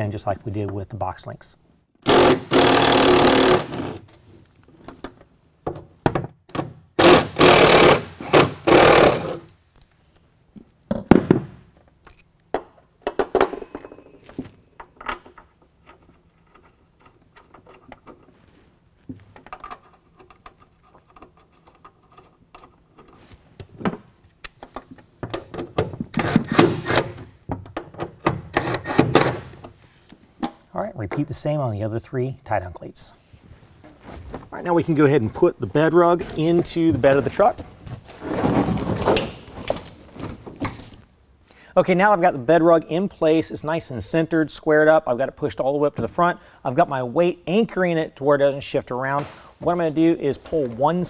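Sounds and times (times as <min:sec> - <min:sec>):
bolts clinking: 0:11.8 - 0:18.3.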